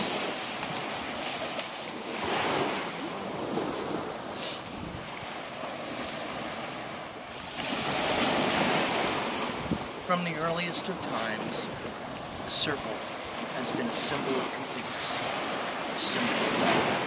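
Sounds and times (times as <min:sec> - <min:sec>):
wind buffeting microphone: 0:00.0 - 0:10.0
small waves breaking on beach: 0:00.0 - 0:17.0.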